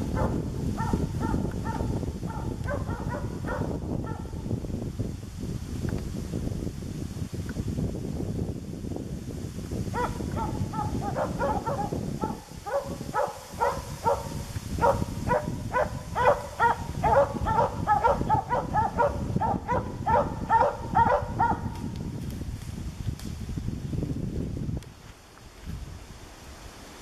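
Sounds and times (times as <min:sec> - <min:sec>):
dog barking: 0:00.1 - 0:04.4, 0:09.9 - 0:21.8.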